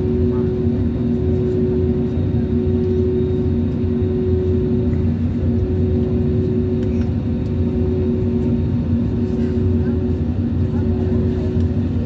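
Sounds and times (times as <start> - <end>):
jet engines idling: 0.0 - 12.0
steady hum: 0.0 - 12.0.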